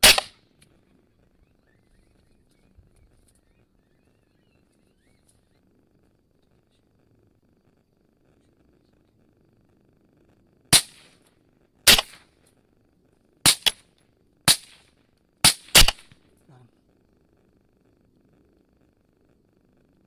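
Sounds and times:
rifle shots: 0.0 - 0.5, 10.7 - 12.3, 13.4 - 16.2
faint low hum: 0.0 - 20.0.

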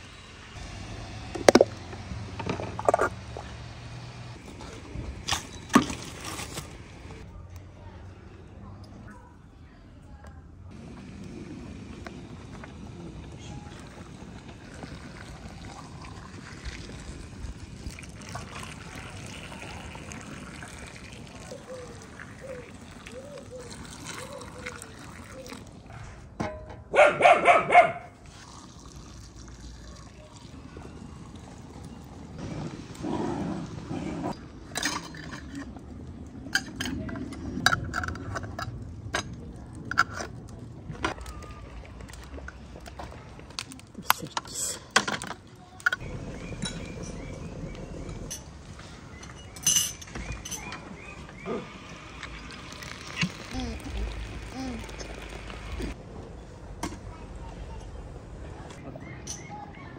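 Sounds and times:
water pouring into glass jars: 13.7 - 25.9, 28.2 - 32.4, 46.0 - 56.0
metal lids clinking on glass jars: 34.7 - 35.7, 48.3 - 51.1, 59.2 - 59.6.

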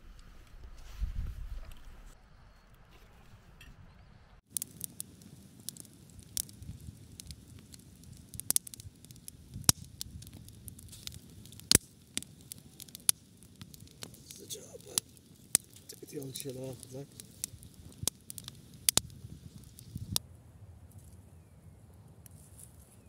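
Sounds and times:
campfire crackling and popping: 4.4 - 21.2, 21.9 - 23.0
faint hiss: 4.5 - 20.2.

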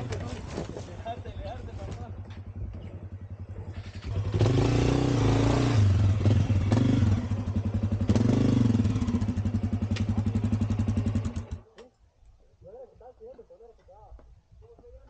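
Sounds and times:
dirt bike engine revving: 1.4 - 11.6.

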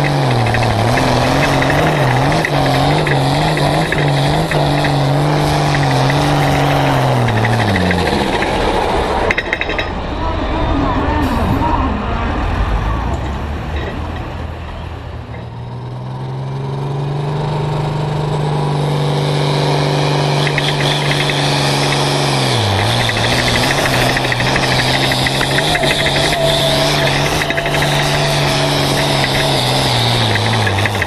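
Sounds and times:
tractor diesel engine under load: 0.0 - 31.0
high whine: 19.6 - 31.0.

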